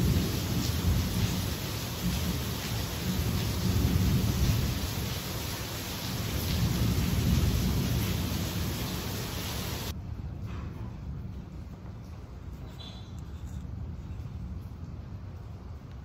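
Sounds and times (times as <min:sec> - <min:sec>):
heavy rain hissing: 0:00.0 - 0:10.0.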